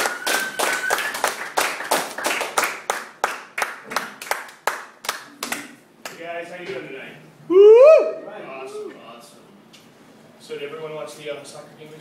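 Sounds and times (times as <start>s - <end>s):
audience clapping: 0.0s - 6.2s.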